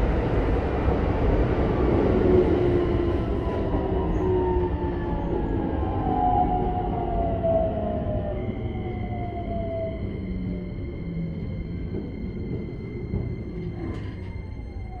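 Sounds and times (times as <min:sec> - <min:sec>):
wheels rumbling on rail: 0:00.0 - 0:15.0.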